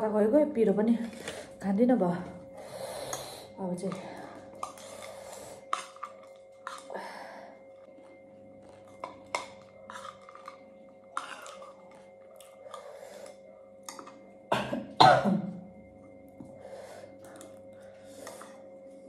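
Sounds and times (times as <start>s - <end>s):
woman coughing: 14.5s - 15.7s.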